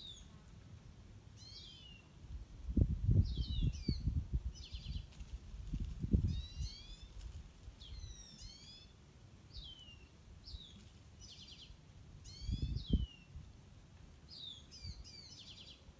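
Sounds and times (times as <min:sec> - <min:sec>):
songbirds whistling: 0:01.4 - 0:02.1, 0:03.2 - 0:05.1, 0:06.2 - 0:07.2, 0:07.8 - 0:13.3, 0:14.3 - 0:15.8.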